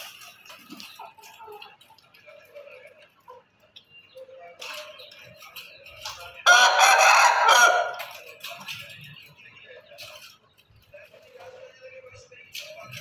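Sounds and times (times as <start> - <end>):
rooster crowing: 6.5 - 8.0.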